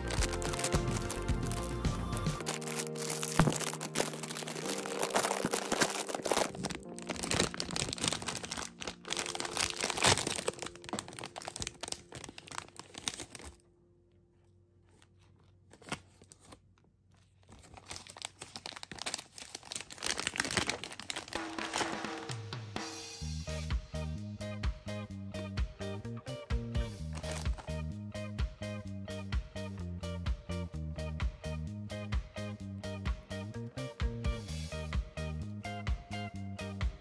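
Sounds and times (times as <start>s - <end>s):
plastic bag crinkling: 0.0s - 1.8s, 2.4s - 13.6s, 14.9s - 22.2s, 27.1s - 27.7s.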